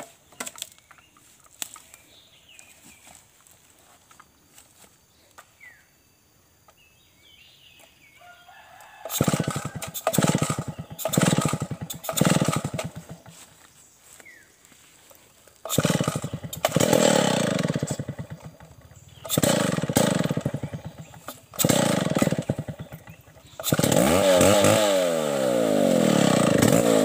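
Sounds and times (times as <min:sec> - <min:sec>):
faint bird chirps: 0:00.0 - 0:09.0
chainsaw engine sputtering: 0:09.0 - 0:13.6, 0:15.5 - 0:27.0.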